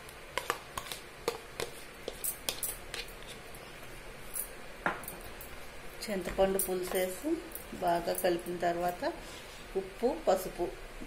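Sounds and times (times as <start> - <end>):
spoon scraping plastic bowl: 0.3 - 3.4.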